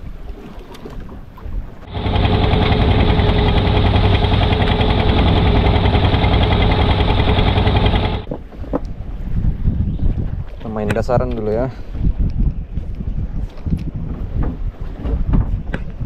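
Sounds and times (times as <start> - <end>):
boat engine running: 1.8 - 8.4.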